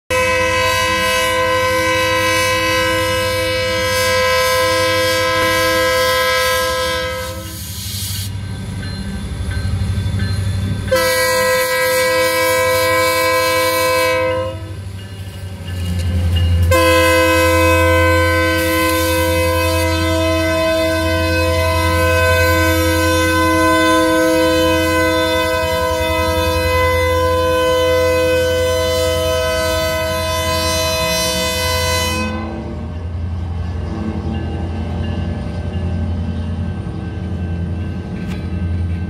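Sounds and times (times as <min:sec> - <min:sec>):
locomotive air horn blasts: 0:00.1 - 0:07.7, 0:10.9 - 0:14.8, 0:16.7 - 0:33.0.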